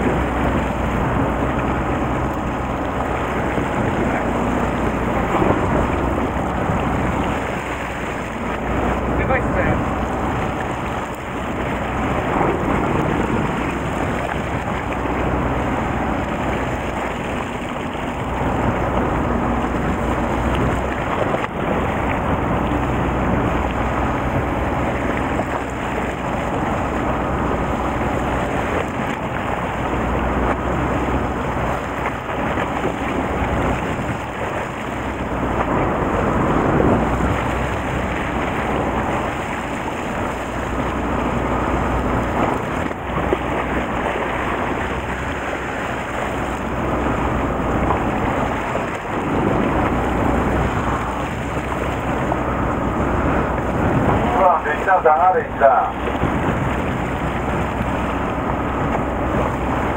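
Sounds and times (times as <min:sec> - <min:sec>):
low steady hum: 0:00.0 - 0:59.9
sea water washing against boat: 0:00.0 - 0:59.9
wind buffeting microphone: 0:00.0 - 0:59.9.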